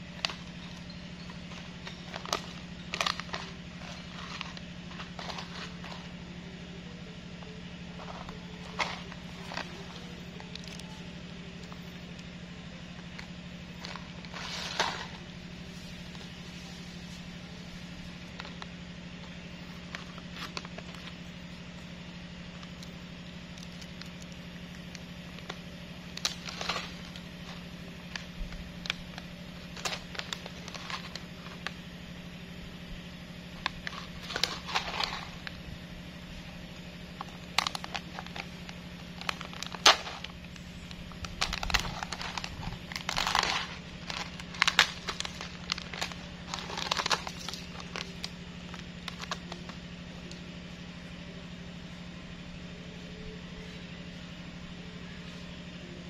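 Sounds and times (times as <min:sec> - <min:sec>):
crackling and rustling: 0:00.0 - 0:06.6, 0:07.3 - 0:32.0, 0:33.0 - 0:50.4
low hum: 0:00.0 - 0:56.0.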